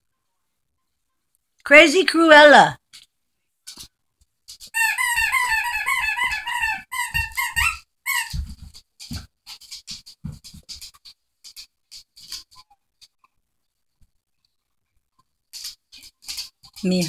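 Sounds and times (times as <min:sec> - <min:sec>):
squeaky toy squeaking: 0:04.7 - 0:08.5
puppy chewing and pawing: 0:06.0 - 0:13.4, 0:15.2 - 0:17.0.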